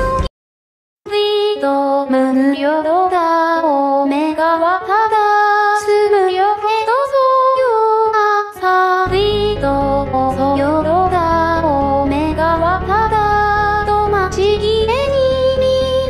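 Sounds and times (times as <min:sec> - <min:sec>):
synthesized female singing voice: 0:00.0 - 0:00.3, 0:01.1 - 0:16.0
low musical accompaniment: 0:09.1 - 0:16.0.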